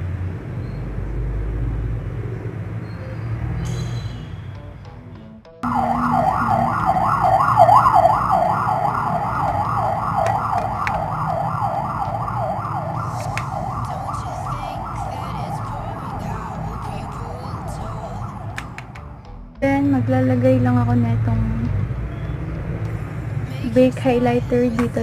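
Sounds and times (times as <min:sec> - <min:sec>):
electronic yelp siren: 0:05.6 - 0:19.2.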